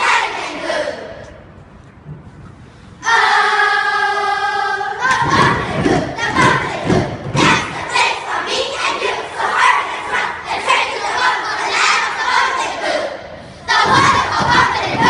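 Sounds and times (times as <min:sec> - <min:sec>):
children reciting in unison: 0:00.0 - 0:01.3, 0:03.0 - 0:15.0.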